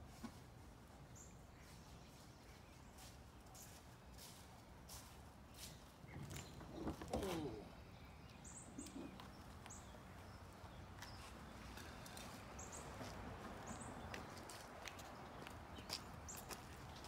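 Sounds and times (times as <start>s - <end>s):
light footsteps on pavement: 1.6s - 6.6s, 9.1s - 17.0s.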